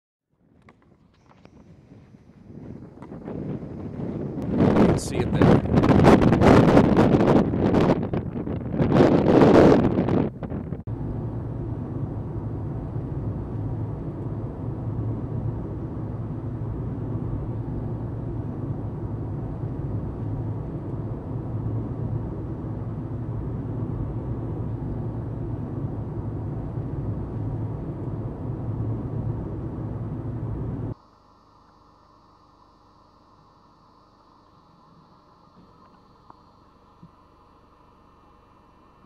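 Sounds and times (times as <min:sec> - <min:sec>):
car driving rumble: 0:00.4 - 0:31.0.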